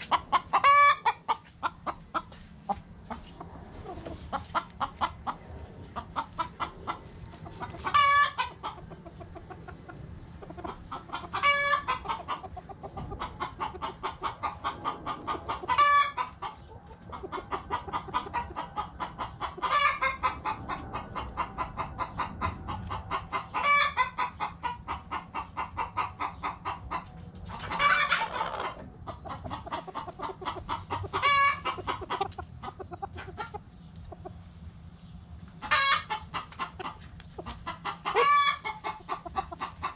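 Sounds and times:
chickens clucking: 0:00.0 - 0:39.9
chicken high call: 0:27.6 - 0:28.9.

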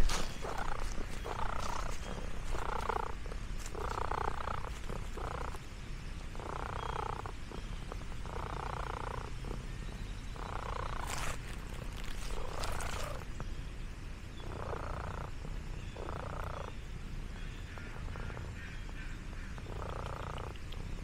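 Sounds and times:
cat purring: 0:00.0 - 0:05.6, 0:06.3 - 0:13.4, 0:14.4 - 0:16.7, 0:19.6 - 0:20.8.

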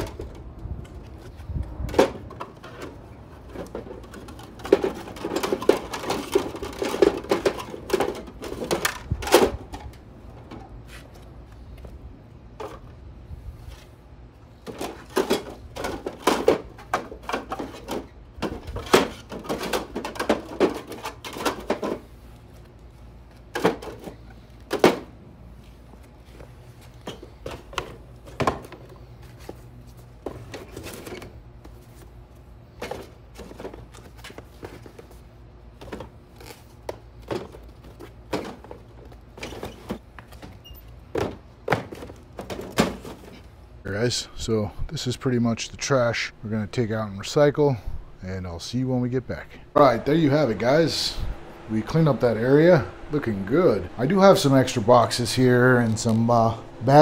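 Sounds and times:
plastic spools clattering: 0:02.2 - 0:09.9.

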